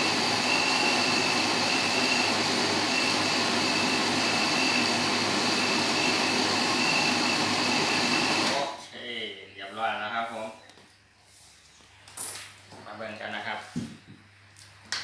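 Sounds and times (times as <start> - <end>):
electric blender running: 0.0 - 8.7
faint high whine: 0.0 - 10.6.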